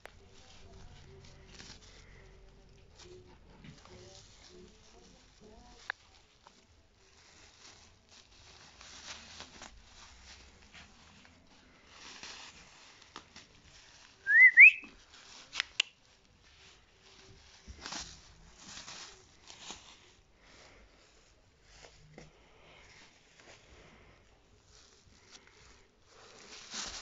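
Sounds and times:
plastic bag rustling: 0.0s - 27.0s
high whistle-like tone: 14.2s - 14.9s.

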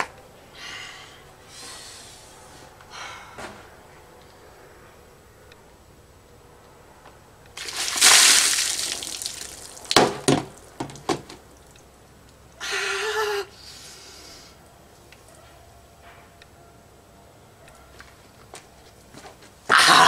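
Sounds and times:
water splashing onto paving: 7.6s - 11.4s.

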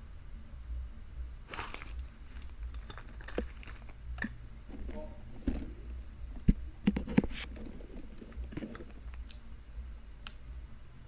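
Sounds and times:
low steady hum: 0.0s - 11.0s
squishy toy being handled: 1.5s - 4.0s.

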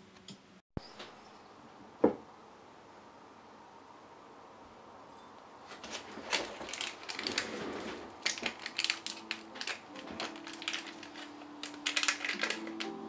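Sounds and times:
snack wrapper crackling: 5.8s - 13.0s
soft lofi music: 8.4s - 13.0s.

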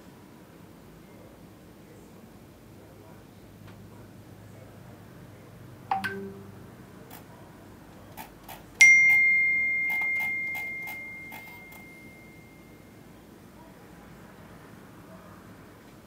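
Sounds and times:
quiet ding: 5.9s - 6.7s, 8.8s - 12.8s
phone notification chime: 5.9s - 6.8s, 8.8s - 12.8s.

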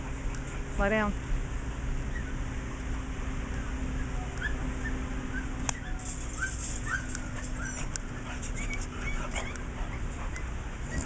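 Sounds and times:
steady low hum: 0.0s - 11.0s
dog whimpering: 2.1s - 2.4s, 3.5s - 11.0s.

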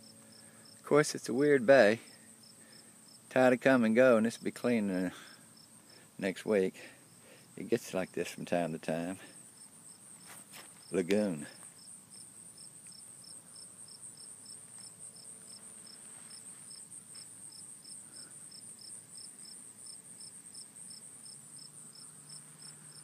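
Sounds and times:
insect chirping rhythmically: 2.0s - 3.3s, 5.0s - 6.2s, 9.2s - 10.9s, 11.6s - 23.0s.

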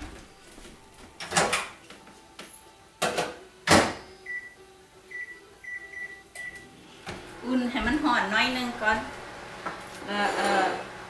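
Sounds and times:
microwave keypad beeping: 4.2s - 6.7s.

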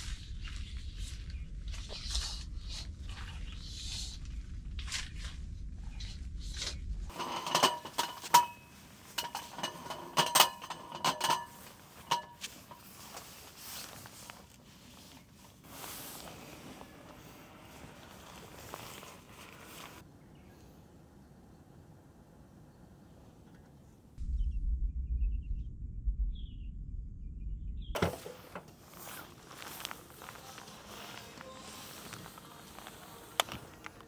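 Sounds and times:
low rumble: 0.0s - 7.1s, 24.2s - 28.0s
soft rustling: 11.3s - 20.0s, 28.1s - 34.0s
tent fabric rustling: 11.5s - 20.0s, 28.0s - 34.0s.

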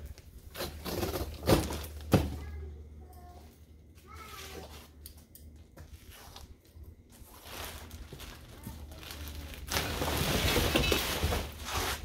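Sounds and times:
plastic wrapping rustling: 5.9s - 12.0s.

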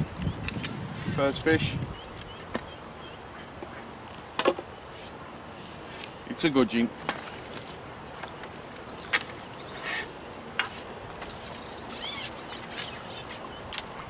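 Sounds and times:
small birds chirping: 0.0s - 14.0s
bird trill: 8.5s - 13.7s.

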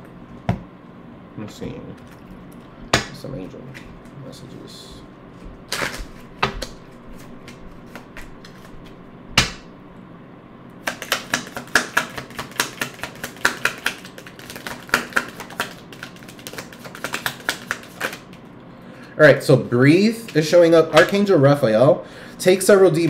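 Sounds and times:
cards riffling: 10.8s - 18.4s
cards tapping and knocking: 10.8s - 18.4s.

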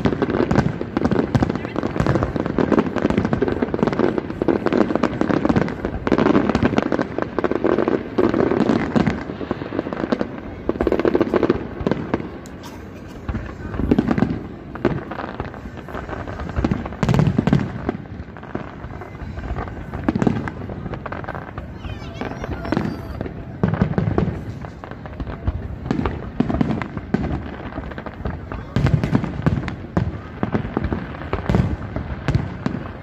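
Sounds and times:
fireworks bangs and crackles: 0.0s - 33.0s.

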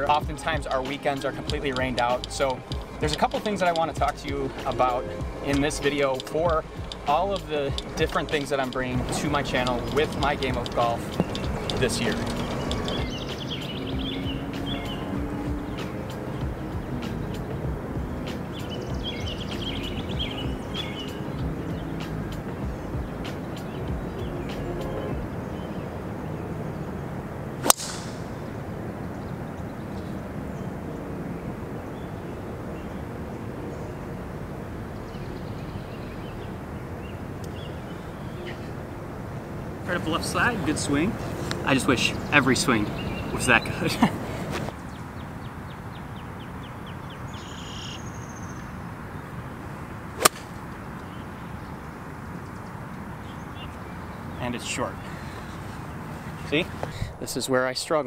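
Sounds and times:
outdoor background noise: 0.0s - 58.0s
golf club striking ball: 5.5s - 13.5s, 27.6s - 28.6s, 50.2s - 50.7s.

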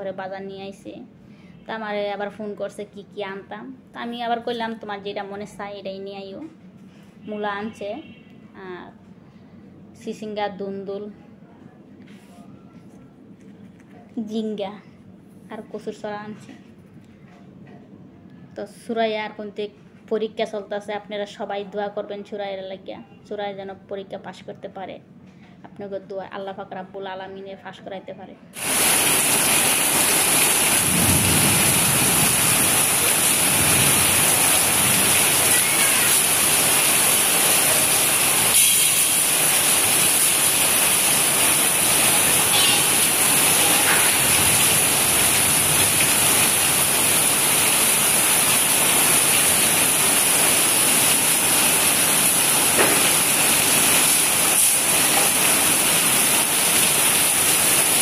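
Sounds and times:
heavy rain on roofs: 28.6s - 58.0s.

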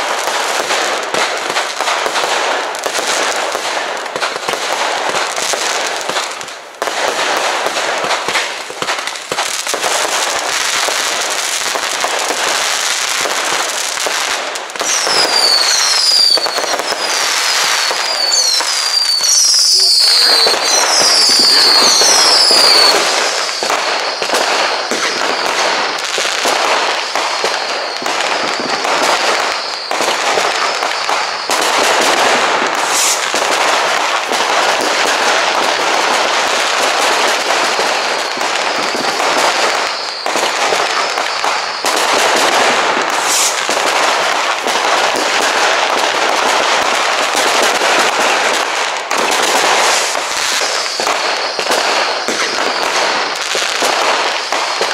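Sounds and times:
fireworks crackling and banging: 0.0s - 54.9s
fireworks whistling: 0.0s - 54.9s.

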